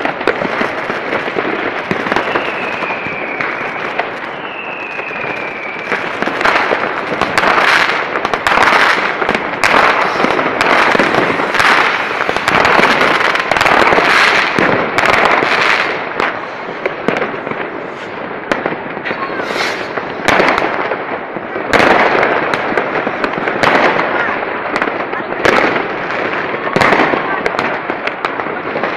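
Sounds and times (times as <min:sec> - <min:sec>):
fireworks bangs and crackling: 0:00.0 - 0:28.9
high falling whistle: 0:04.3 - 0:06.0.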